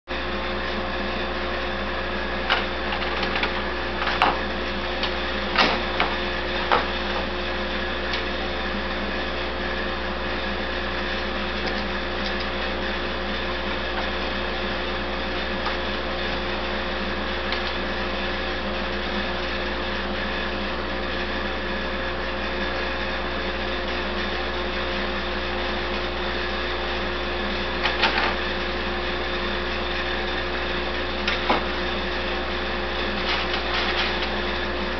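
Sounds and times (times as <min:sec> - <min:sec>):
steady machine hum: 0:00.1 - 0:34.9.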